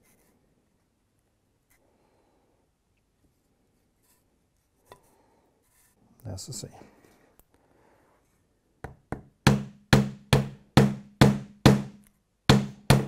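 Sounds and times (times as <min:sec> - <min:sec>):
hammer knocking on plastic: 0:08.8 - 0:13.0.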